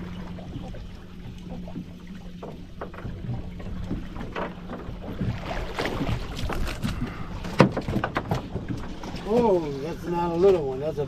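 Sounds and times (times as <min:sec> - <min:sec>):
low hum: 0:00.0 - 0:10.4
fish splashing in water: 0:04.6 - 0:08.5.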